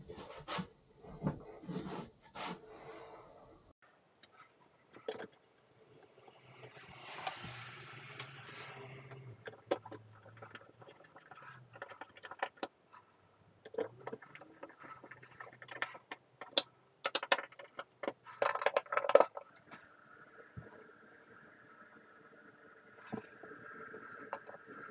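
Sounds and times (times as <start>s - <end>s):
plastic clicks and knocks: 13.6s - 19.6s.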